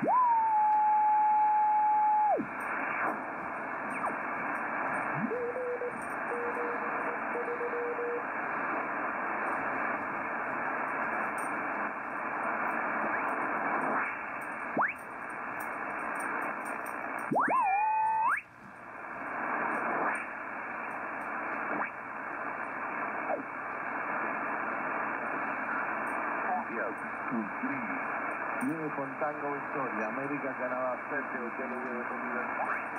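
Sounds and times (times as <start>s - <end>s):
radio receiver hiss: 0.0s - 32.9s.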